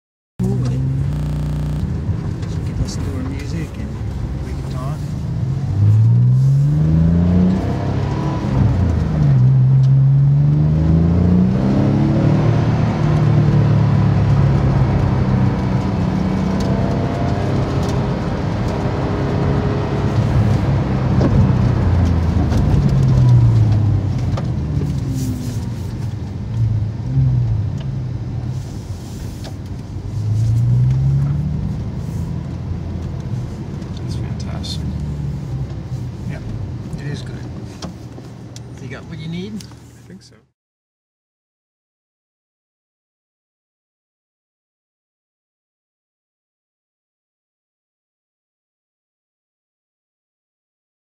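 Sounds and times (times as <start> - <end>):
car engine accelerating: 0.4 - 39.9.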